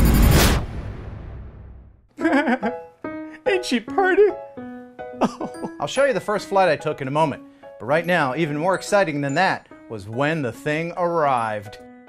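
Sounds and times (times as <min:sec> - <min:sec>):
whoosh: 0:00.0 - 0:02.0
music: 0:02.1 - 0:12.0.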